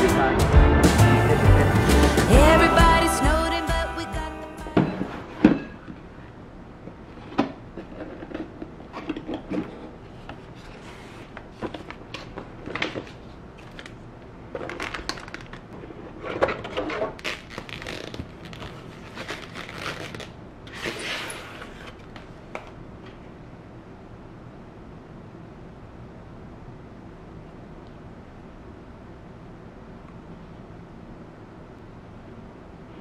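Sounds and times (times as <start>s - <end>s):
plastic bag crinkling: 14.5s - 15.7s, 17.1s - 20.4s
tissue paper rustling: 17.2s - 22.0s.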